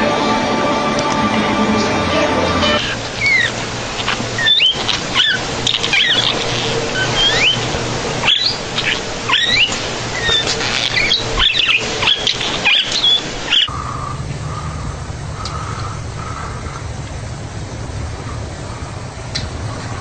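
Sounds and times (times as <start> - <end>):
steady low hum: 0.0 - 20.0
high-pitched animal squeaks: 2.6 - 13.7.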